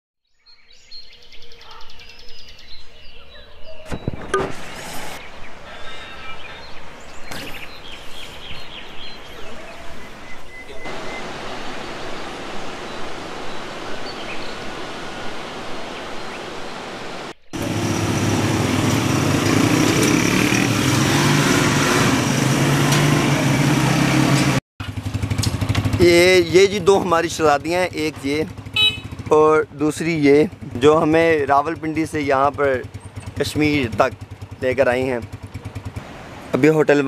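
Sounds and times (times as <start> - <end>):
river rushing over rocks: 10.8 - 17.3
engine idling: 24.8 - 36.0.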